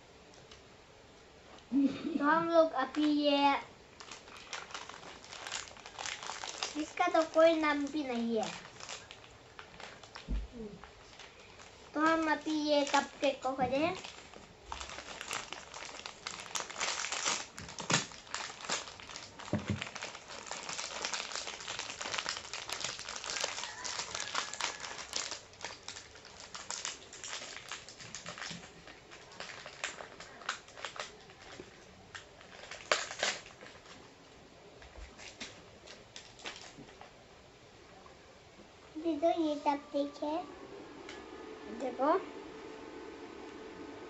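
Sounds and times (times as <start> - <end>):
plastic wrappers crinkling: 2.8 - 37.2.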